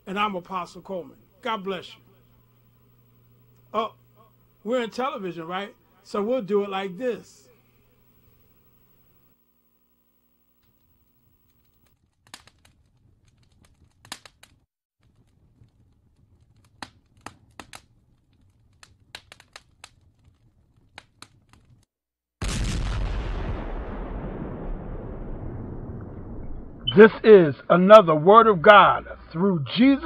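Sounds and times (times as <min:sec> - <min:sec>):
crinkling rustles: 0:11.5 - 0:21.9
low hum: 0:23.0 - 0:30.0.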